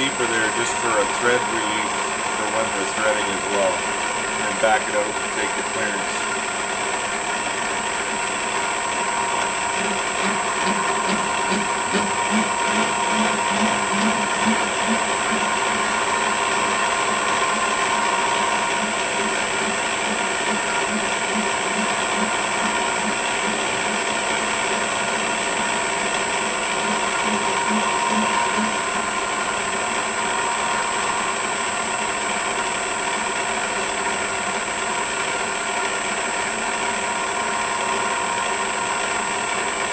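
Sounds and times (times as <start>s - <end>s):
lathe gears whirring: 0.0s - 39.9s
tool cutting steel: 9.4s - 29.6s.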